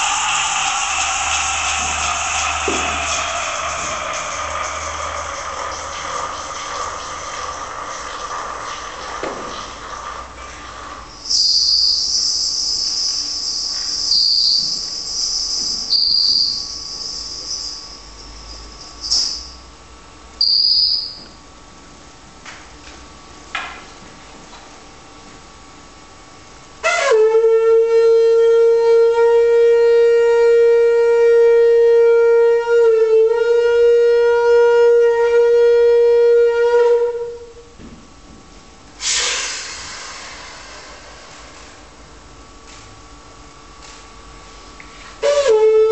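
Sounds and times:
shrill high-pitched tone: 0:00.0 - 0:06.7, 0:11.2 - 0:19.6, 0:20.4 - 0:21.2
trumpet holding a long note: 0:26.8 - 0:37.6, 0:45.2 - 0:45.9.

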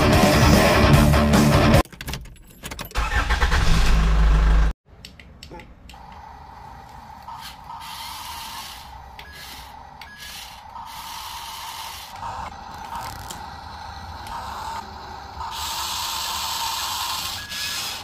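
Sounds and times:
toy motors whirring: 0:06.9 - 0:18.0.

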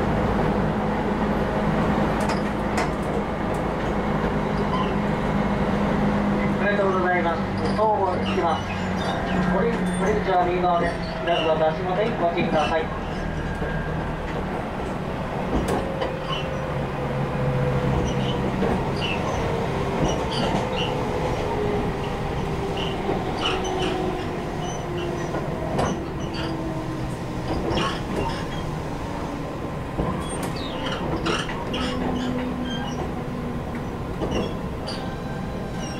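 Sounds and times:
wheel and rail rumble: 0:00.0 - 0:35.9.

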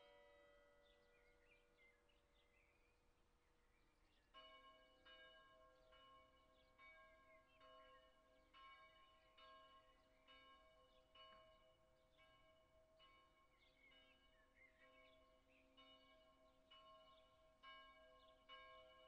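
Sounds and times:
distant church bell ringing: 0:00.0 - 0:01.8, 0:04.3 - 0:19.0.

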